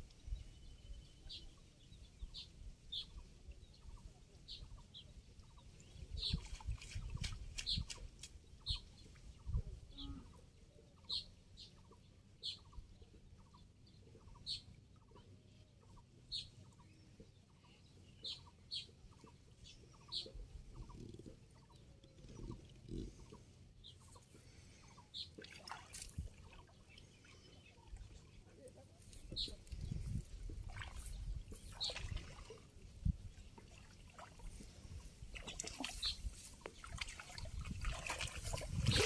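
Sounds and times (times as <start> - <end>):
water sloshing: 25.3 - 27.4, 30.5 - 39.0.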